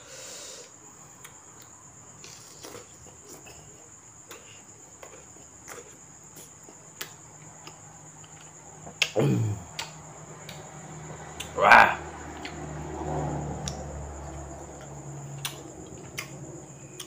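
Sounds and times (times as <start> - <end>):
crickets chirping: 0.0 - 17.0
chewing mouth clicks: 4.3 - 10.7, 14.8 - 17.0
short falling vocal sound: 11.6 - 12.0.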